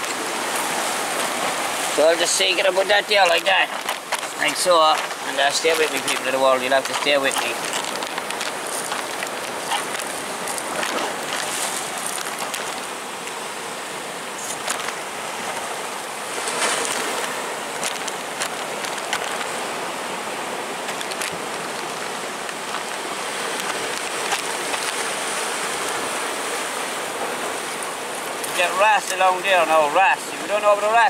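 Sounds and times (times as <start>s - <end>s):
surf washing against rocks: 0.0s - 31.0s.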